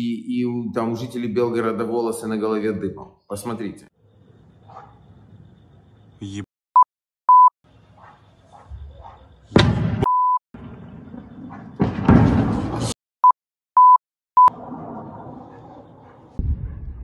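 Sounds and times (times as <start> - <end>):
censor bleeps: 6.8 - 7.5, 10.0 - 10.4, 13.2 - 14.5.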